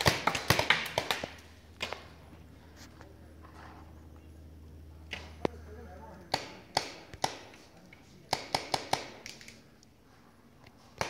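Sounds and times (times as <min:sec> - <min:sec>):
paintball markers firing pops: 0:06.3 - 0:09.6.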